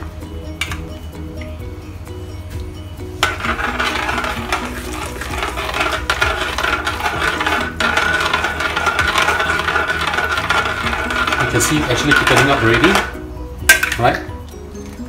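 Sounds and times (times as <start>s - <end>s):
metal spatula scraping wok: 3.2s - 13.2s.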